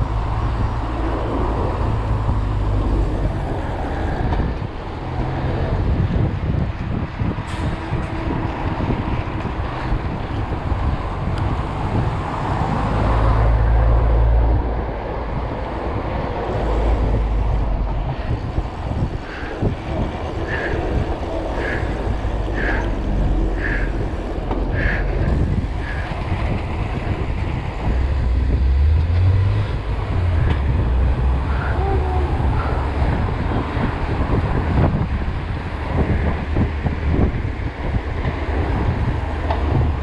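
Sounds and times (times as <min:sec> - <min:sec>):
wind buffeting microphone: 0:00.0 - 0:40.0
bike tyres rolling on pavement: 0:16.6 - 0:31.4.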